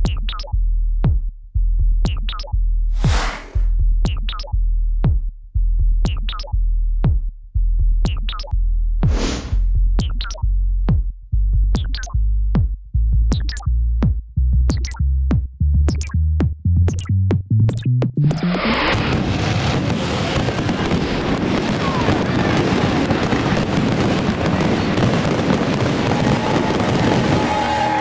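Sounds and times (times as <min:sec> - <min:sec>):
electronic music with drum machine: 0:00.0 - 0:01.2, 0:02.0 - 0:02.6, 0:04.0 - 0:05.2, 0:06.0 - 0:07.2, 0:08.0 - 0:08.5, 0:10.0 - 0:11.1, 0:11.8 - 0:18.6.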